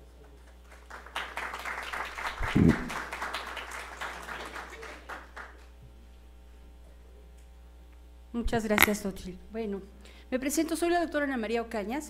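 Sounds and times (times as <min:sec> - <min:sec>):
audience applauding: 0:00.6 - 0:05.7.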